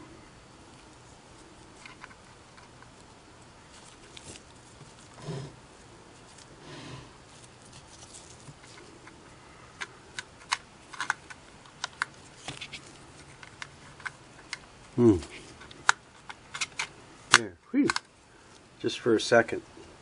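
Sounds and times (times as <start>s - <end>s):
handling rustles: 0.9s - 5.2s, 7.2s - 9.3s, 10.4s - 18.0s.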